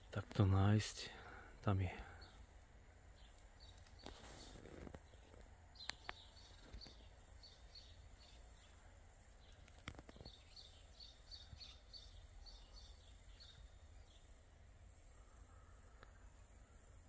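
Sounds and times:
sparrow chirps: 0:03.1 - 0:08.8, 0:09.4 - 0:14.4.

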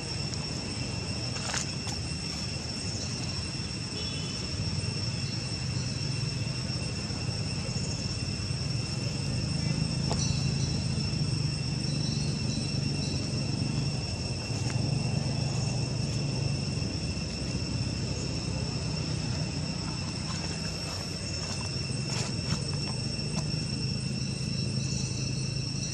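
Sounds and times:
insects trilling: 0:00.0 - 0:25.9.

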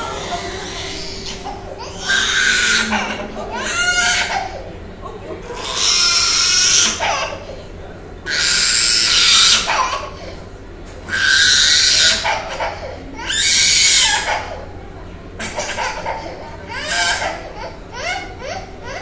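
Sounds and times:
toddler screaming and crying: 0:00.0 - 0:04.6, 0:11.1 - 0:14.6.

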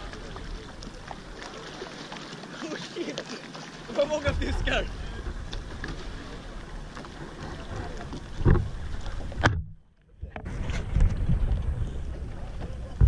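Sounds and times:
water slapping around a boat: 0:00.0 - 0:13.0
muffled low rumble: 0:04.3 - 0:09.6
wind buffeting microphone: 0:10.3 - 0:13.0.

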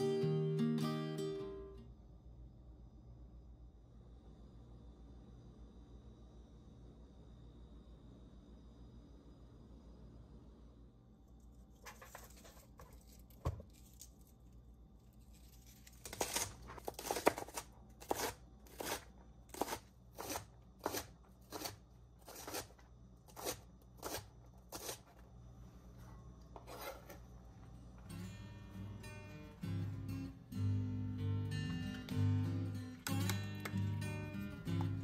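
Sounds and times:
knife cutting strokes: 0:15.2 - 0:25.2.

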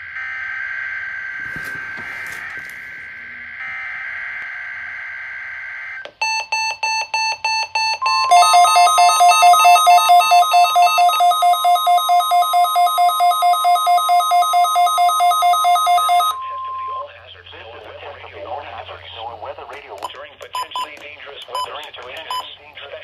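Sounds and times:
steady warning alarm tone: 0:00.0 - 0:17.1
radio alarm beeping: 0:06.2 - 0:17.4, 0:20.0 - 0:22.6.

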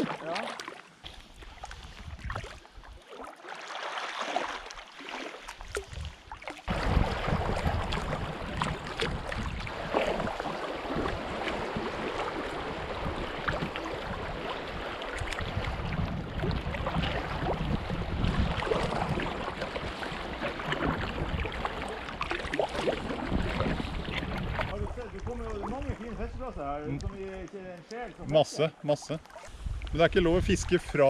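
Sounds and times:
water rushing along kayak hull: 0:00.0 - 0:31.0
wind buffeting microphone: 0:01.8 - 0:02.6, 0:05.9 - 0:27.4, 0:29.5 - 0:31.0.

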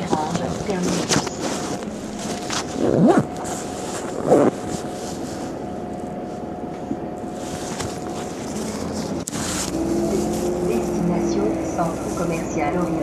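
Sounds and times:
bus engine humming: 0:00.0 - 0:13.0
thin steady whine: 0:00.0 - 0:13.0.

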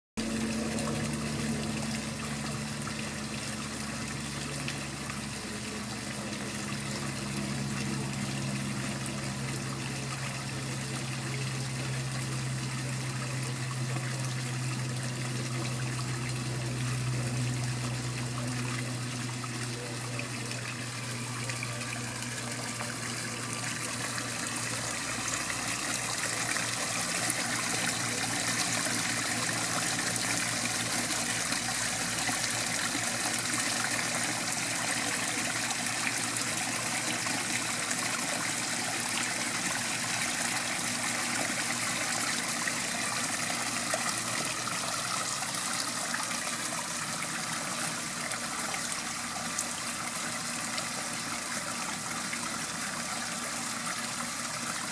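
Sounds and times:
water splashing over rocks: 0:13.7 - 0:54.9.

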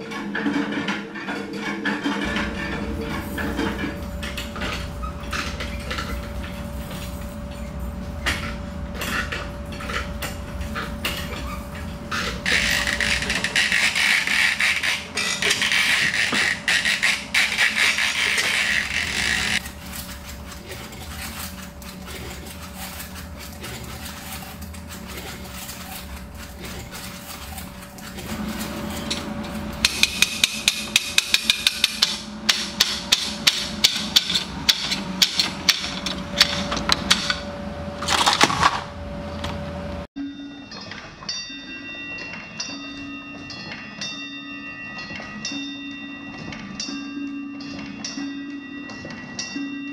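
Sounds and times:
singing bowls ringing: 0:02.2 - 0:32.2, 0:40.1 - 0:49.9
loud rasping noise: 0:11.4 - 0:37.4.

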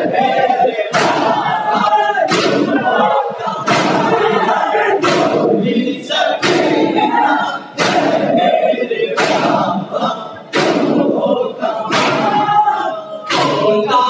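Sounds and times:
men chanting in chorus: 0:00.0 - 0:14.0
hands slapping chests: 0:00.9 - 0:01.4, 0:02.3 - 0:02.8, 0:03.6 - 0:04.2, 0:05.0 - 0:05.6, 0:06.3 - 0:07.0, 0:07.8 - 0:08.3, 0:09.2 - 0:09.8, 0:10.5 - 0:11.2, 0:11.9 - 0:12.5, 0:13.3 - 0:13.7.

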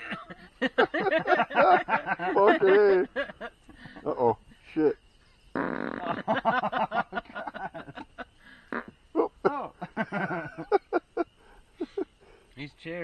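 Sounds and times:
men laughing: 0:00.0 - 0:04.9, 0:06.0 - 0:12.4.

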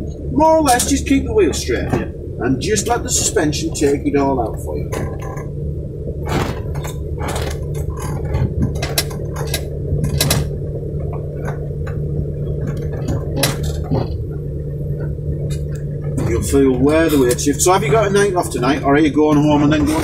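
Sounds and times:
vehicle body jolting over ruts: 0:00.0 - 0:20.0
vehicle engine running at low revs: 0:00.0 - 0:20.0
clinks and rattles of loose fittings: 0:03.1 - 0:05.6, 0:06.3 - 0:14.0.

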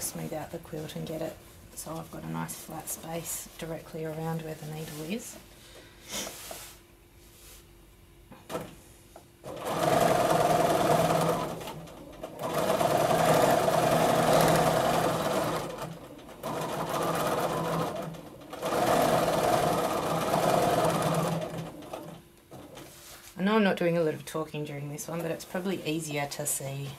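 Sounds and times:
sewing machine stitching: 0:09.4 - 0:22.8.

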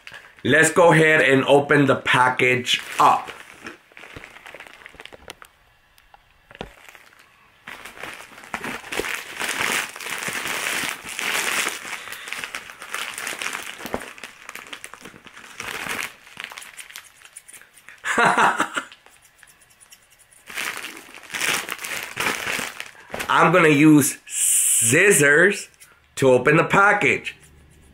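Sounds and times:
plastic bag crinkling: 0:02.1 - 0:18.0, 0:20.3 - 0:23.8.

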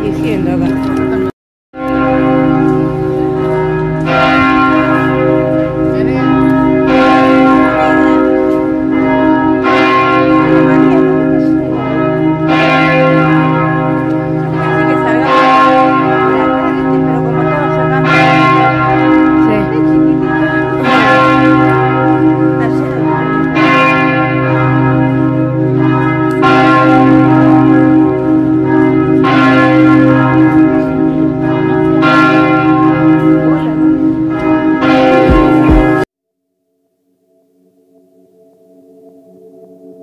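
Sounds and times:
church bells ringing: 0:00.0 - 0:36.1.

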